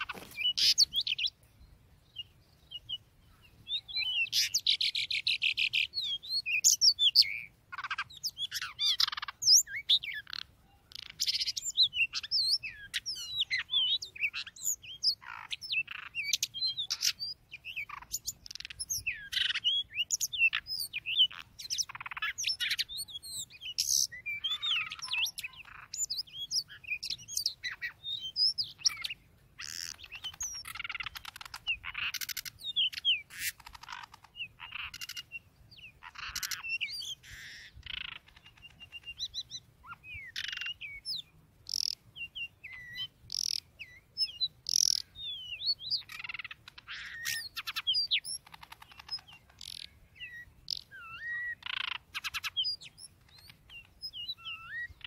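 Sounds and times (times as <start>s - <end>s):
songbird whistling and chirping: 0.0s - 55.0s.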